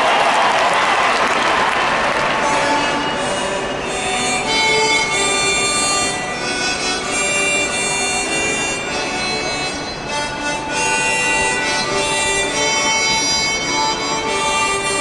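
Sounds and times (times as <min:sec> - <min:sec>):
applause: 0:00.0 - 0:02.6
harmonica playing slow tune: 0:02.4 - 0:15.0.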